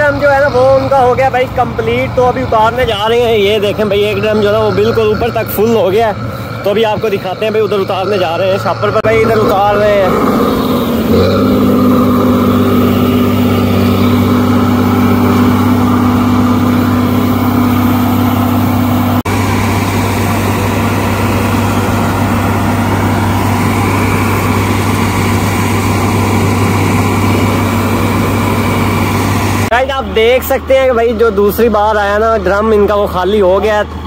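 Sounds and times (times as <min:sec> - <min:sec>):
grain auger unloading: 0:00.0 - 0:30.4
diesel engine running: 0:00.0 - 0:34.0.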